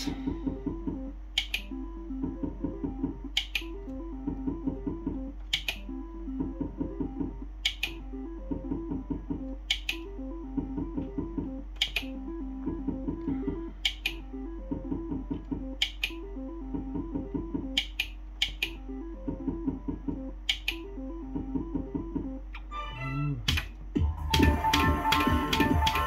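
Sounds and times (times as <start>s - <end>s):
sharp double clicks: 5.4s - 5.8s, 7.6s - 8.0s, 11.8s - 12.1s
slot machine reel-spin jingle: 24.1s - 26.0s.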